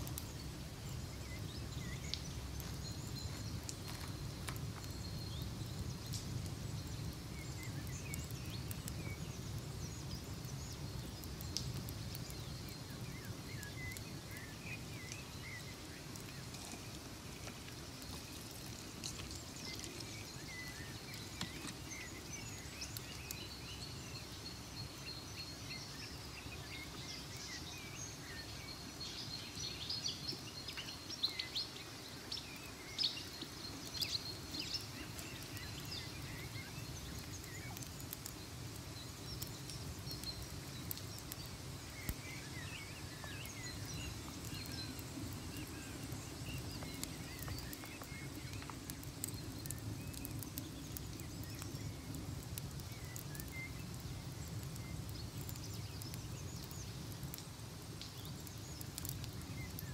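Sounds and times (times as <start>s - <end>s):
birds chirping: 0.0s - 59.9s
faint clicks: 46.5s - 59.9s.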